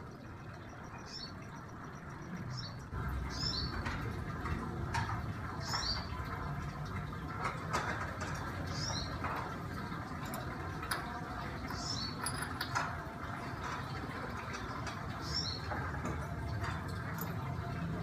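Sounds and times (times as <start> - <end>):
bird chirping: 0.4 - 3.7.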